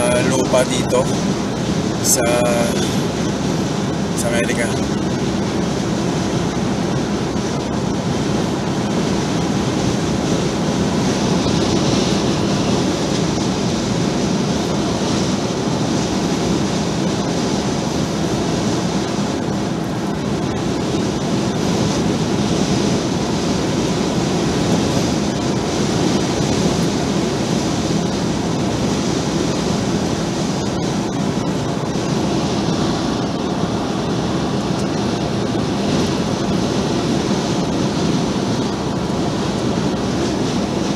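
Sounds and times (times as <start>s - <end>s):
wind rushing past vehicle: 0.0s - 40.9s.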